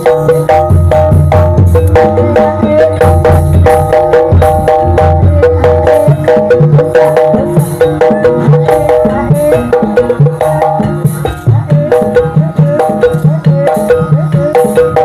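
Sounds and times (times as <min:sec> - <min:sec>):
gamelan tuned percussion melody: 0:00.0 - 0:15.0
steady drum beats: 0:00.0 - 0:15.0.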